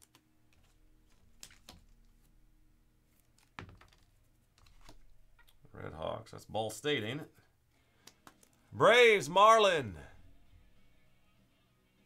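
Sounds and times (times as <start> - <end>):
trading cards clicking: 8.0 - 8.6.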